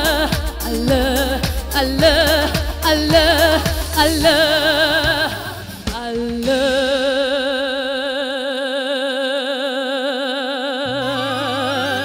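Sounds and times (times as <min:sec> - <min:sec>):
sustained backing music: 0:00.0 - 0:07.6
person singing long vibrato note: 0:07.1 - 0:12.0.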